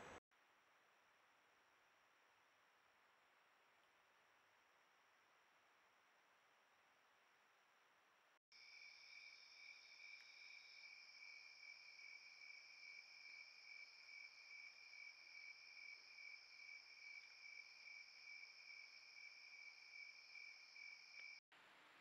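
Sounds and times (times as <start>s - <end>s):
crickets trilling: 8.6s - 21.4s.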